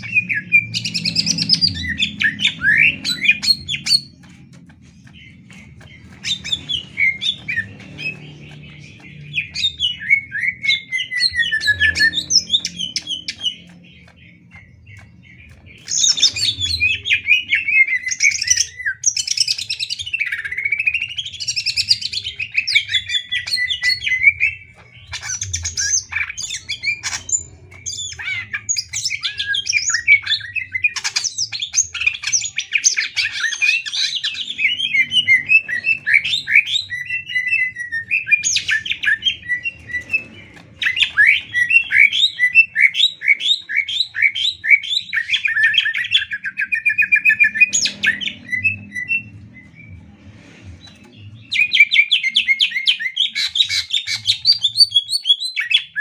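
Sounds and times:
bird singing whistled notes: 0.0 - 4.4, 5.1 - 50.1, 50.8 - 56.0.

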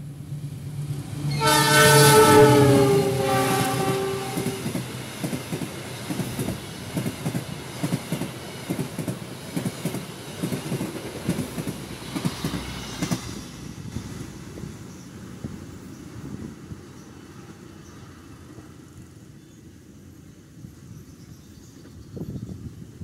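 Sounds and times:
train horn: 1.3 - 4.8
train wheels clacking over rail joints: 2.8 - 14.6.

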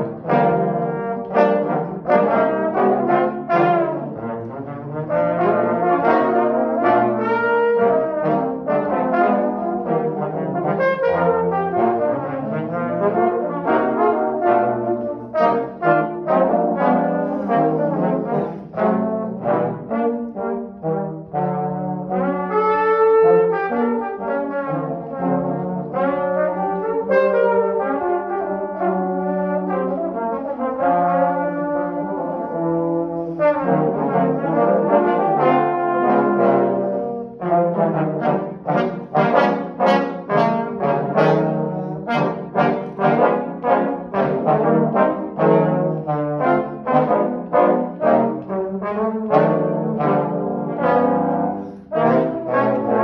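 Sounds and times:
trombones playing in harmony: 0.0 - 53.0.

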